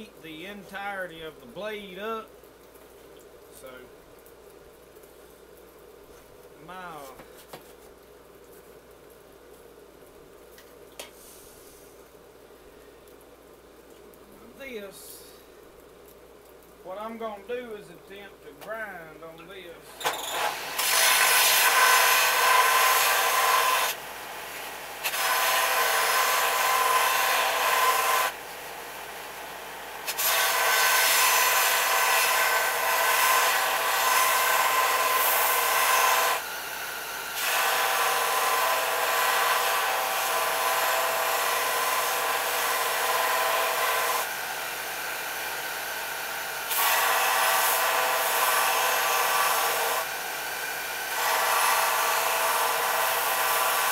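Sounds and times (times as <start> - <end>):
power grinder grinding steel: 20.1 - 24.0, 24.8 - 28.4, 30.0 - 36.5, 37.1 - 44.4, 45.0 - 53.9.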